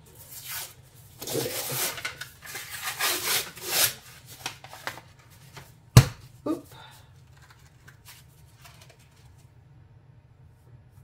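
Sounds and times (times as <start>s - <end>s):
paper wrapper ripping: 0.4s - 5.2s.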